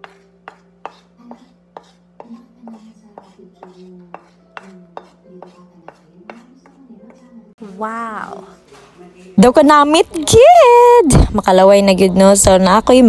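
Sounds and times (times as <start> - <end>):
utensil knocking on hard surface: 0.0 - 7.3.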